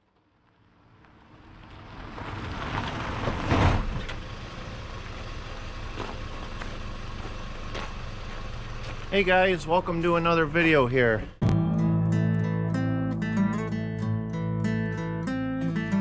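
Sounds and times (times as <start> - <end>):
vehicle engine running: 0.5 - 11.4.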